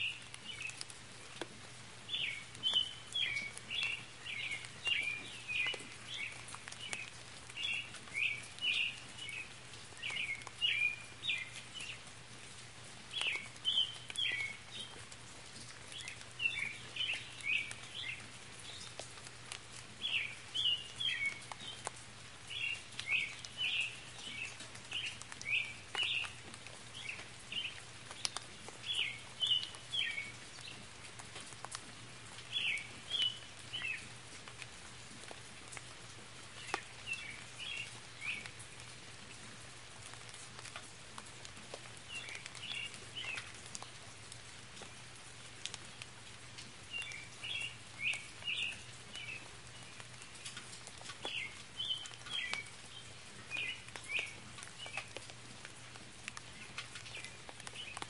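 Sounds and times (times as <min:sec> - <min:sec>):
light rain patter: 0:00.0 - 0:58.0
bird chirping: 0:02.1 - 0:12.0, 0:27.0 - 0:30.8, 0:51.2 - 0:55.2.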